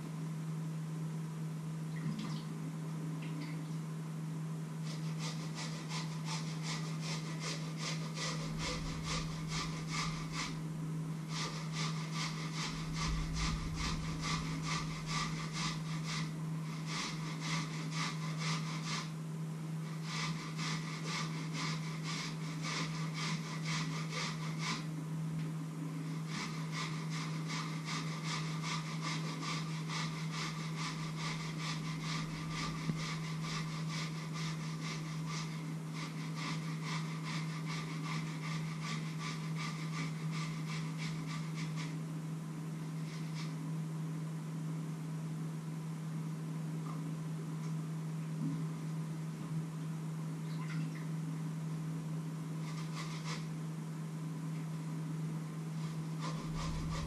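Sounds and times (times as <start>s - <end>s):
steady low hum: 0.0s - 57.0s
potato peeling scrapes: 4.9s - 10.6s, 11.3s - 19.1s, 19.9s - 24.9s, 26.2s - 42.0s, 42.9s - 43.6s, 52.6s - 53.5s, 55.8s - 57.0s.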